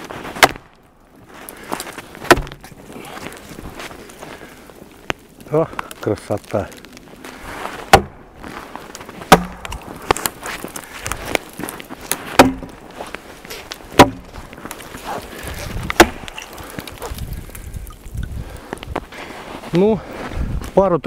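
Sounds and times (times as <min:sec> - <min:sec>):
wood cracking and snapping: 0:00.0 - 0:19.6
wooden pole knocking on tree trunk: 0:02.3 - 0:02.6, 0:07.9 - 0:08.1, 0:09.3 - 0:09.8, 0:12.4 - 0:12.7, 0:14.0 - 0:14.3.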